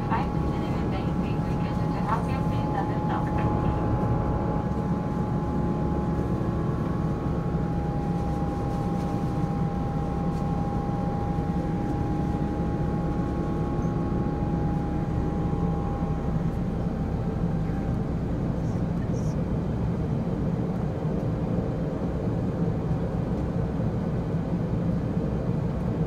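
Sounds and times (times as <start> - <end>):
steady high whine: 0.0 - 20.6
low rumble of jet engines: 0.0 - 26.0.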